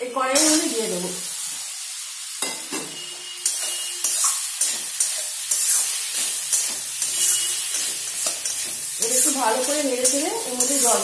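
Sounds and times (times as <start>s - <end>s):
potatoes sizzling in hot oil: 0.0s - 11.0s
spatula scraping a metal pan: 2.4s - 11.0s.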